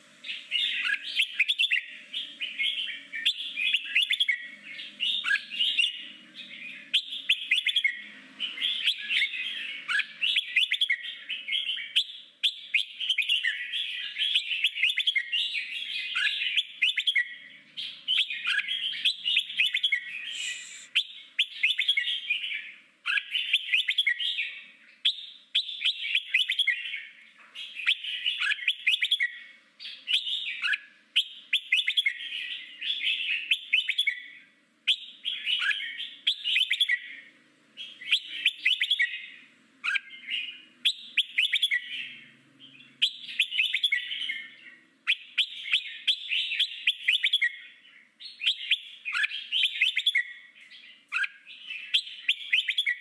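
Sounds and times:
bird singing chattering phrases: 0.3s - 12.0s, 12.6s - 25.0s.

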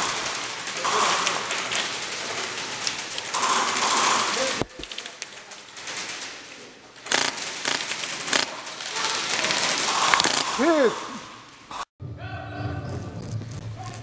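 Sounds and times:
rifle and kit rattling: 0.0s - 10.9s.

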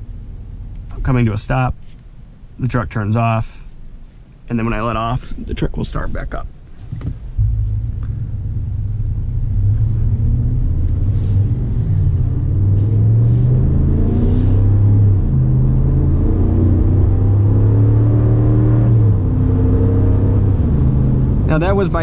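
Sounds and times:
truck engine restarting: 7.4s - 18.0s
engine accelerating through gears: 7.4s - 22.0s.

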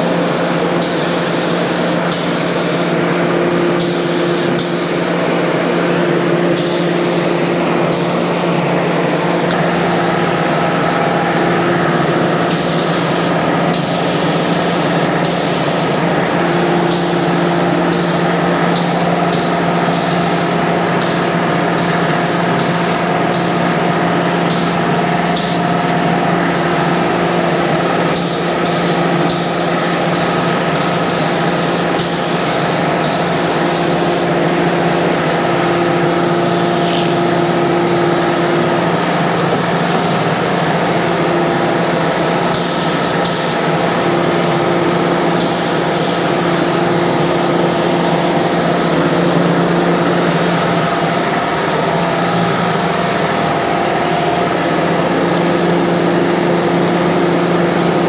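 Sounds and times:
paint spray gun hissing: 0.0s - 3.1s, 3.8s - 5.2s, 6.5s - 8.7s, 12.5s - 16.1s, 16.8s - 25.8s, 28.1s - 34.4s, 42.5s - 43.7s, 45.3s - 46.4s
steady hum: 0.0s - 58.0s.

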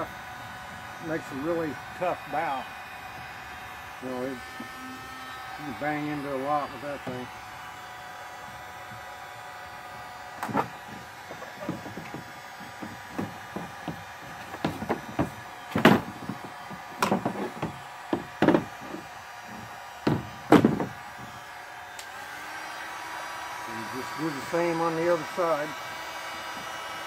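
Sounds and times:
heat gun humming: 0.0s - 27.0s
plastic knocks and clatters: 10.4s - 21.3s.

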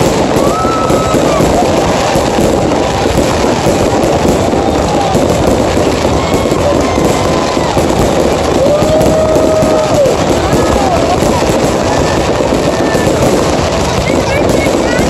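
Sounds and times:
fireworks bursting and crackling: 0.0s - 15.0s.

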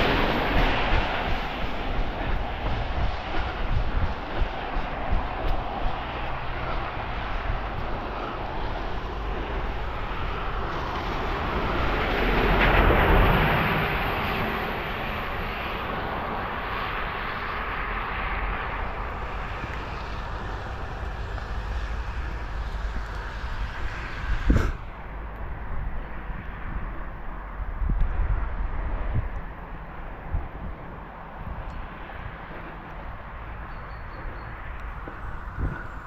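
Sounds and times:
steady low rumble: 0.0s - 33.7s, 34.4s - 36.0s
vehicle passing by: 4.5s - 26.7s.

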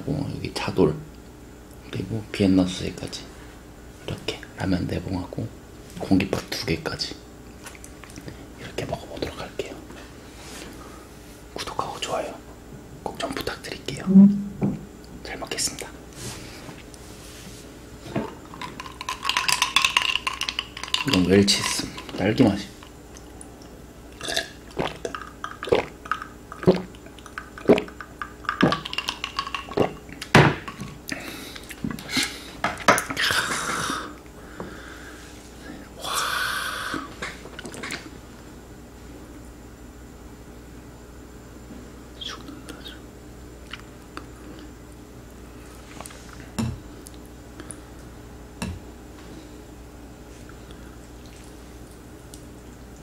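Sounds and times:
ice cubes clinking against glass: 18.6s - 22.1s, 28.5s - 29.8s
person gulping a drink: 24.2s - 30.3s, 37.0s - 38.1s.

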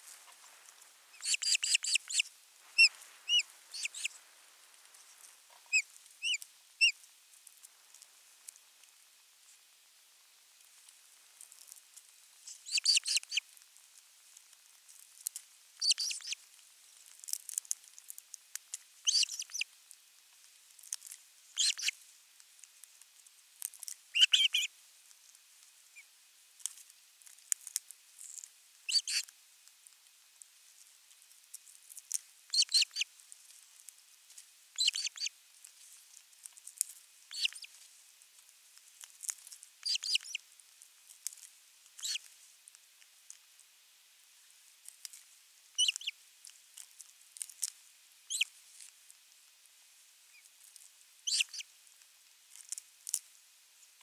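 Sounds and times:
ospreys chirping: 1.1s - 4.2s, 5.7s - 7.0s, 12.5s - 13.4s, 15.8s - 16.4s, 19.0s - 19.7s, 21.6s - 21.9s, 24.1s - 24.7s, 28.9s - 29.2s, 32.5s - 33.1s, 34.8s - 35.3s, 37.3s - 37.7s, 39.8s - 40.4s, 42.0s - 42.2s, 45.8s - 46.1s, 48.3s - 48.5s, 51.2s - 51.6s.

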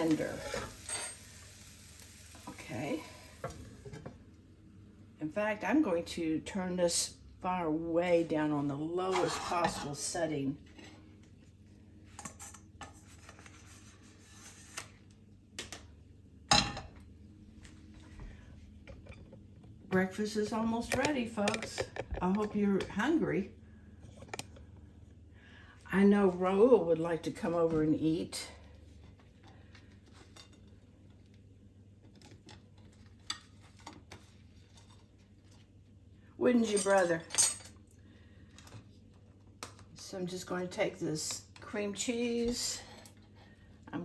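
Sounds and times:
faint steady hiss: 0.0s - 5.9s.

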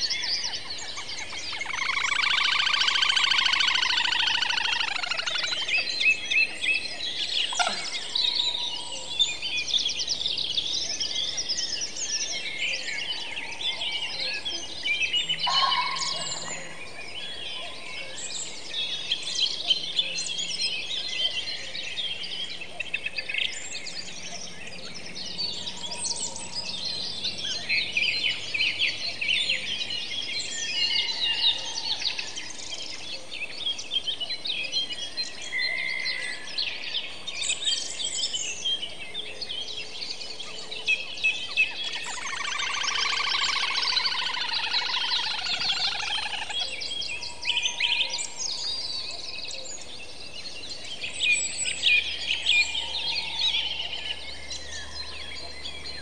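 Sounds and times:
birds chorus chirping: 0.0s - 56.0s.

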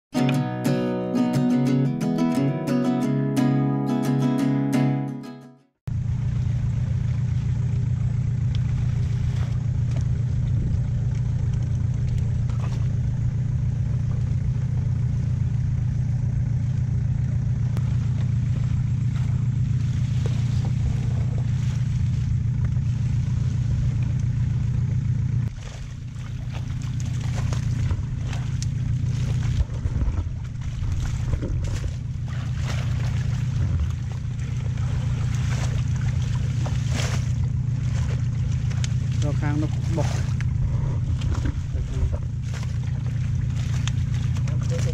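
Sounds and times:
boat engine humming: 0.1s - 44.9s
knocks and scrapes on boat: 12.0s - 13.2s, 17.8s - 24.0s, 25.4s - 44.9s.

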